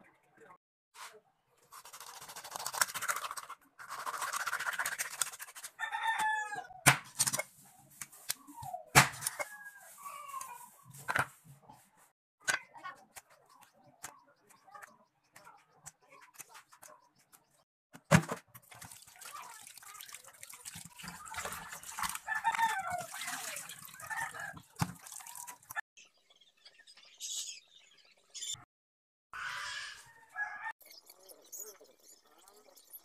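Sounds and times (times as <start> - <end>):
knife scraping fish: 1.7 - 5.8.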